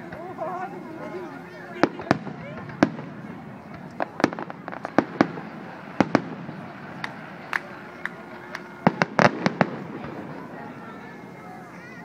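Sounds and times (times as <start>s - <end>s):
firework shells bursting: 1.8s - 10.6s.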